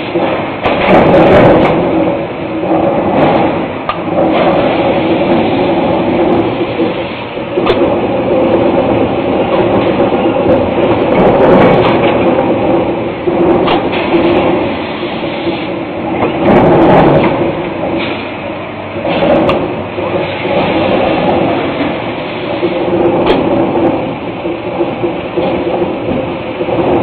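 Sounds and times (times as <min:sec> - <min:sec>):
forging press hum and clatter: 0:00.0 - 0:27.0
sharp knocks: 0:22.8 - 0:27.0.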